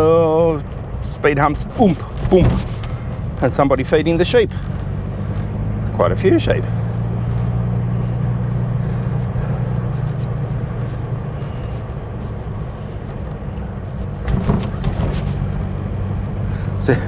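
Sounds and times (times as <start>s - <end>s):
car engine running under load: 0.0s - 17.0s
road noise: 0.0s - 17.0s
clunks: 1.8s - 3.2s, 12.5s - 15.4s.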